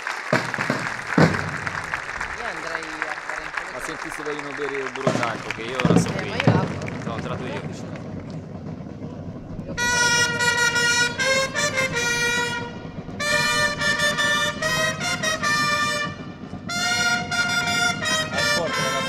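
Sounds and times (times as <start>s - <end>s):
herald trumpets fanfare: 9.6s - 19.0s.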